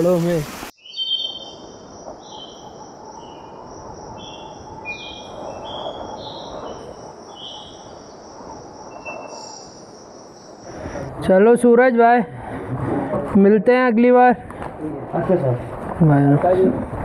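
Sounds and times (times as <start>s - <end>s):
bird chirping: 0.7s - 11.0s
faint high insect-like tone: 0.8s - 11.0s.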